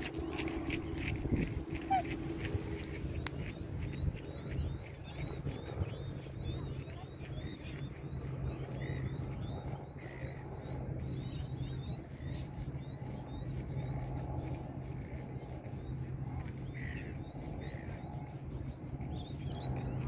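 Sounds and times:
small birds chirping: 0.0s - 10.4s
steady low hum: 0.0s - 20.0s.

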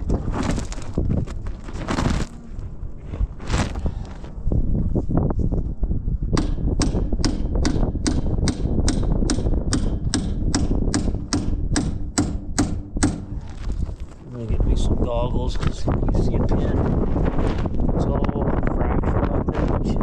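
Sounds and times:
hammer striking steel: 6.4s - 13.3s.

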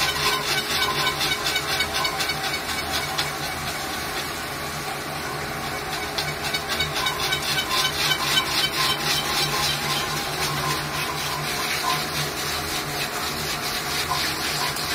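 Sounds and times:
machine humming: 0.0s - 14.9s
water splashing and spraying: 7.5s - 14.9s.

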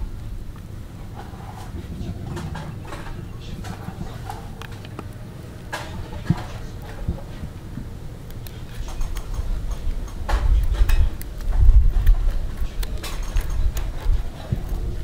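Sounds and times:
scissors snipping through shell: 8.2s - 15.0s.

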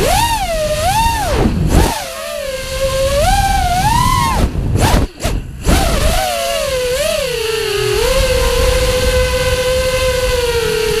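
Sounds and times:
drone motors whining: 0.0s - 11.0s
wind rumble on microphone: 0.0s - 11.0s.

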